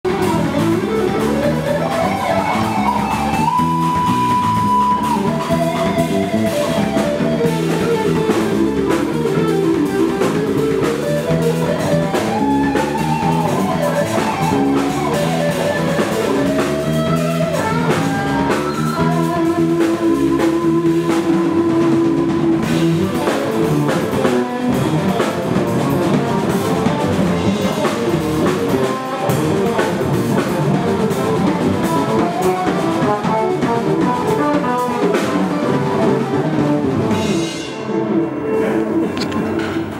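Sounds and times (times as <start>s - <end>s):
bass guitar: 0.0s - 39.9s
drum kit: 0.0s - 39.9s
electric guitar lead: 0.0s - 39.9s.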